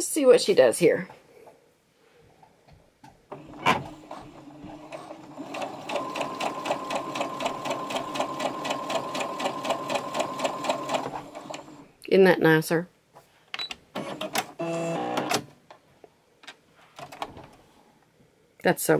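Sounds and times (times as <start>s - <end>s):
sewing machine stitching: 3.3s - 11.8s.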